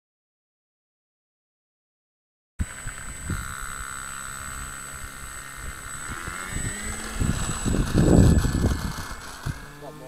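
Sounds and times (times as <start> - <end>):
wind rumbling on microphone: 2.6 - 9.8
model plane motor whining: 2.6 - 10.0.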